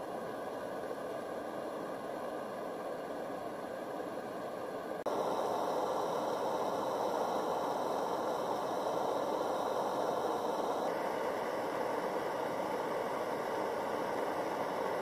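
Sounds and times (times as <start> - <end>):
stove burner rushing: 5.1 - 15.0.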